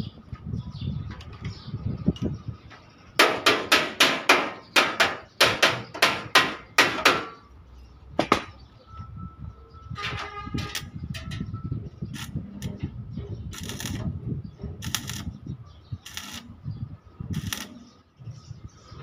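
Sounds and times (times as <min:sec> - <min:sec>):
hammer on sheet metal: 0:03.2 - 0:07.4.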